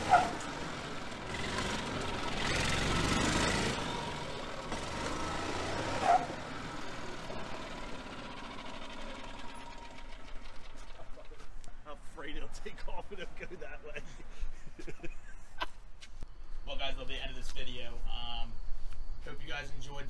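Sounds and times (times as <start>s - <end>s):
golf cart engine running: 0.0s - 11.7s.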